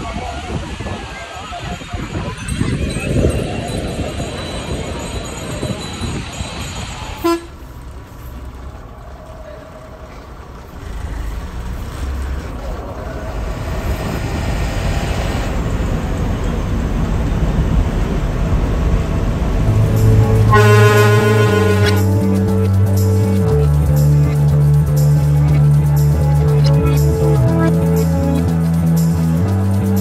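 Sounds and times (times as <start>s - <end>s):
bus engine and road rumble: 0.0s - 30.0s
bus horn: 7.2s - 7.7s, 19.6s - 22.8s
background music: 19.5s - 30.0s.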